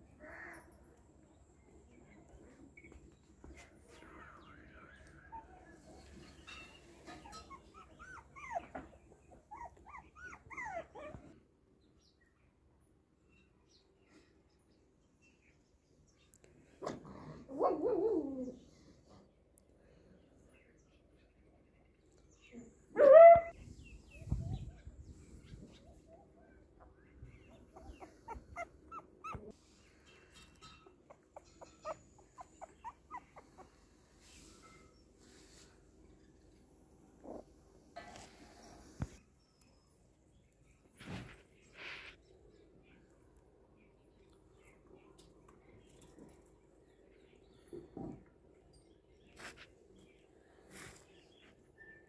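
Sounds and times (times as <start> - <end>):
puppies whimpering: 7.2 - 11.2, 27.3 - 29.6, 31.1 - 33.7.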